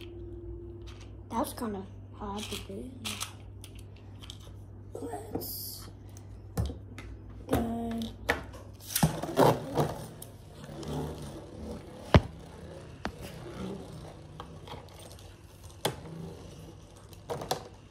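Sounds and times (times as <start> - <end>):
spinning top whirring: 8.8 - 17.8.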